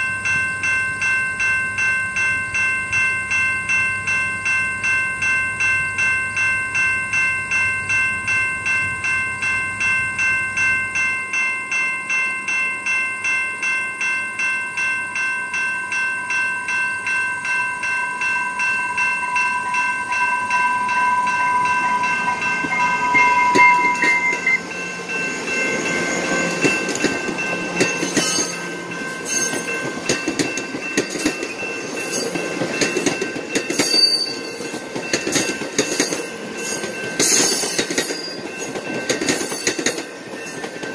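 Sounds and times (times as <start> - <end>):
level crossing warning bell: 0.0 - 40.9
train rumbling past: 18.2 - 40.9
wheels clacking over rail joints: 22.6 - 40.9.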